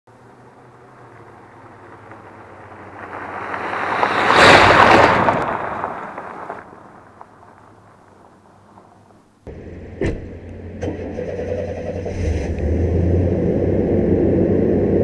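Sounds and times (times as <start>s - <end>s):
pickup truck driving on gravel: 0.1s - 9.6s.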